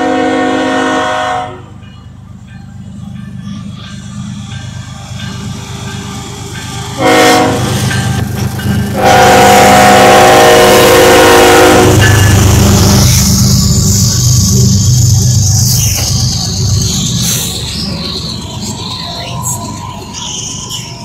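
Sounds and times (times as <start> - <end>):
locomotive horn blasts: 0.0 - 1.8, 7.0 - 7.8, 9.0 - 12.3
diesel locomotive rumble: 0.0 - 21.0.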